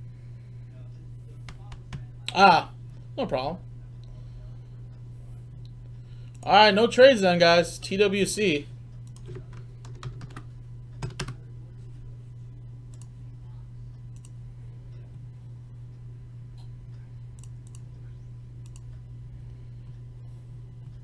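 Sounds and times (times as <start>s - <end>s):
steady low hum: 0.0s - 21.0s
keyboard and mouse clicks: 18.6s - 18.9s.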